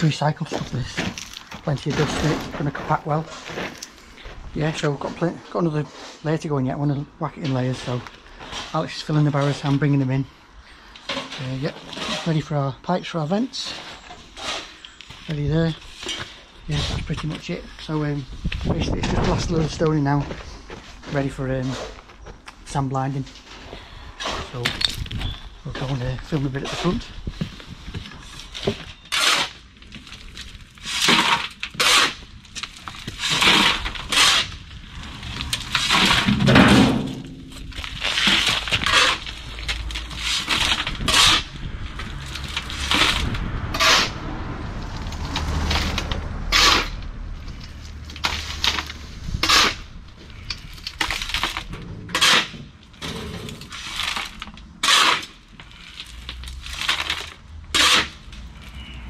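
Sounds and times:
shovel scraping crushed stone: 0.5 - 5.0, 11.1 - 12.6, 28.2 - 44.2, 45.3 - 47.0, 47.6 - 58.3.

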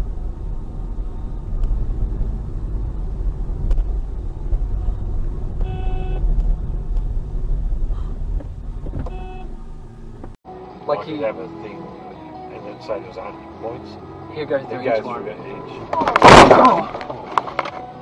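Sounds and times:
car road and engine rumble: 0.0 - 18.0
short horn-like tone: 5.6 - 6.2, 9.0 - 9.6.

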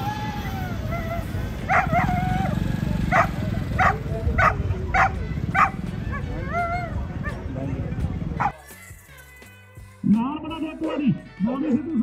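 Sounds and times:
dog whining: 0.0 - 7.4
low crowd rumble: 0.0 - 8.6
dog barking: 1.6 - 6.3, 8.4 - 8.6.

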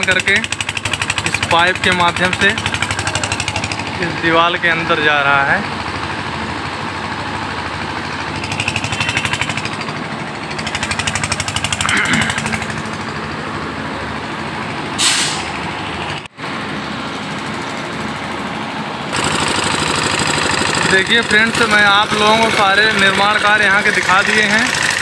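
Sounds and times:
machinery engine pulsing: 0.0 - 25.0
short sharp hiss: 15.0 - 15.5.

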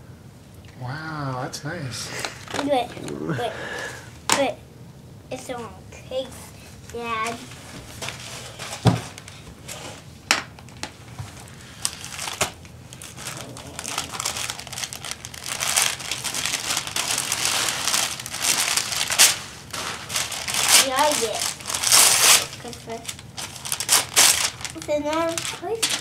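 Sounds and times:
gift wrap paper tearing: 11.4 - 26.0.

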